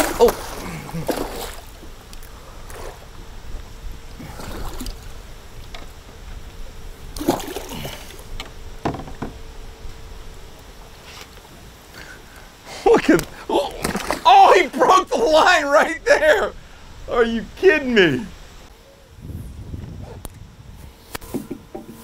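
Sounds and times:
fish splashing at the surface: 0.0s - 1.8s, 7.2s - 8.2s, 13.8s - 14.3s
water sloshing against a boat: 0.0s - 9.6s, 10.4s - 15.9s
wind rumble on microphone: 1.6s - 11.9s, 16.4s - 22.0s.

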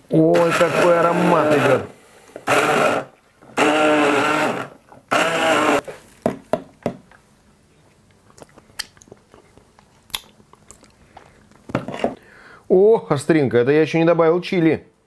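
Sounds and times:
hand blender whining: 0.3s - 5.9s.

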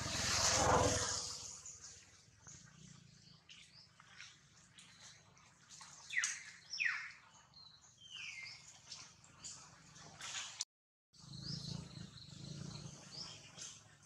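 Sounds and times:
birds calling: 11.2s - 14.0s.

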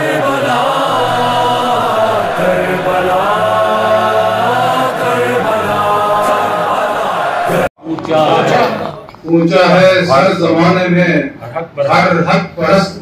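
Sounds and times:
voices chanting: 0.0s - 9.0s.

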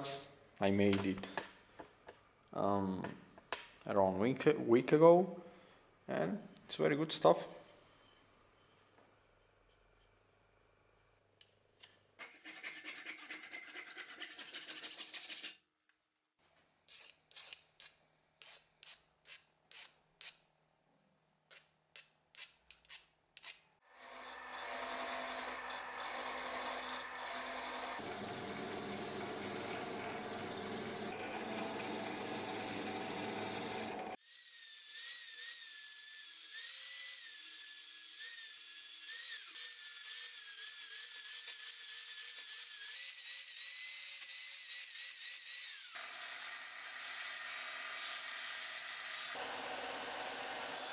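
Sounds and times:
angle grinder whining: 23.9s - 34.2s.

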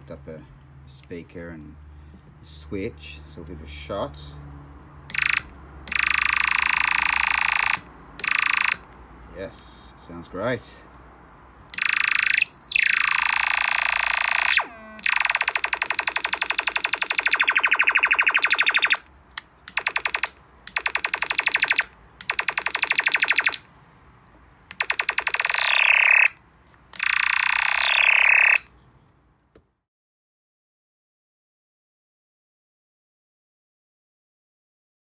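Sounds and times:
electronic laser zaps: 5.1s - 8.8s, 11.8s - 19.1s, 19.7s - 23.7s, 24.7s - 26.4s, 27.0s - 28.7s.

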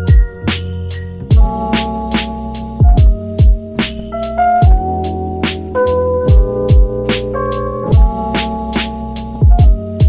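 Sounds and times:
drum beat: 0.0s - 4.9s, 6.3s - 7.2s, 7.9s - 10.0s
sustained keyboard chords: 0.0s - 10.0s.

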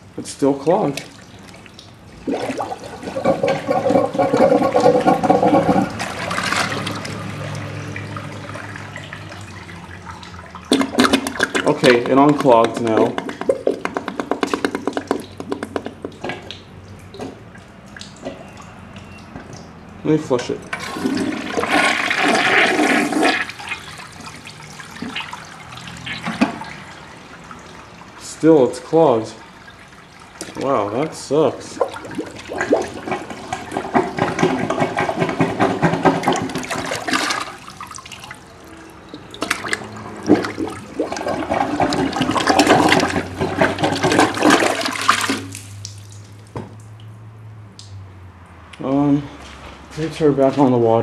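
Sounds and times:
water swirling and trickling: 0.4s - 48.4s
toilet flushing: 0.8s - 15.2s, 20.2s - 45.9s.

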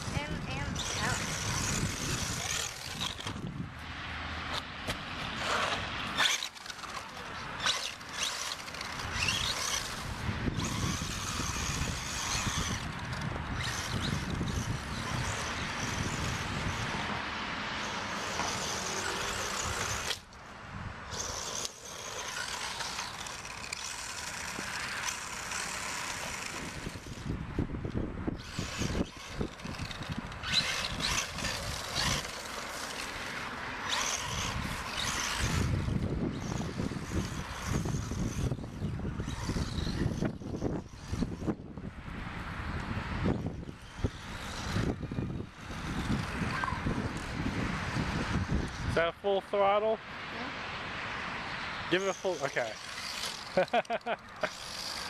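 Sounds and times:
electric motor whining: 0.0s - 3.6s, 5.4s - 20.4s, 21.1s - 41.8s, 42.9s - 48.9s, 51.9s - 55.0s
tyres scrabbling over leaves and dirt: 28.4s - 40.3s.

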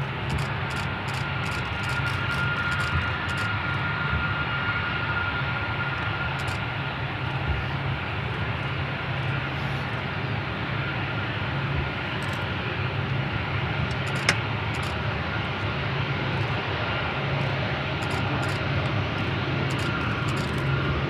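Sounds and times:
high jet whine: 0.0s - 21.0s
jet engine rumble: 0.0s - 21.0s.

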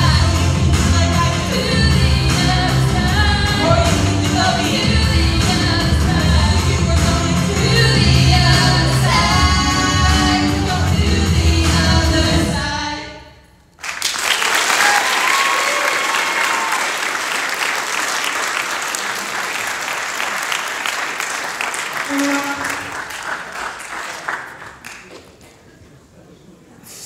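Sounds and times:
amplified accompaniment with bass: 0.0s - 12.9s
two people singing pop song: 0.0s - 13.2s
crowd cheering: 13.8s - 25.2s
audience applause: 13.8s - 25.5s.

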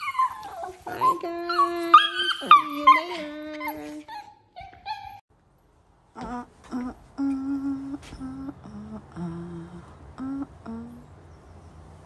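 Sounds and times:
woman humming: 0.8s - 4.1s, 6.1s - 11.2s.

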